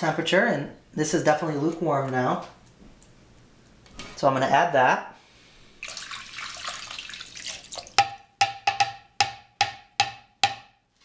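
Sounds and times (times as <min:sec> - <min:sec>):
liquid pouring into a bowl: 0:05.8 - 0:08.1
pan tapping against a bowl: 0:08.0 - 0:10.7.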